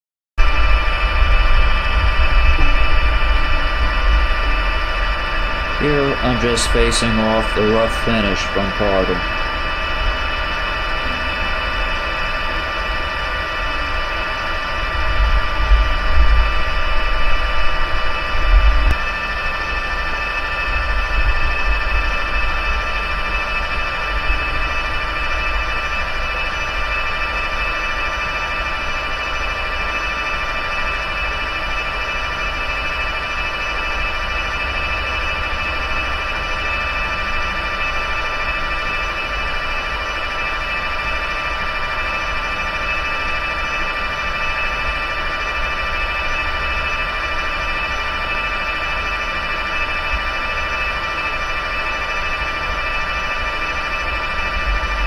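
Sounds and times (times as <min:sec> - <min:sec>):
low rumble: 0:00.4 - 0:05.9
metal lathe whining: 0:00.5 - 0:55.0.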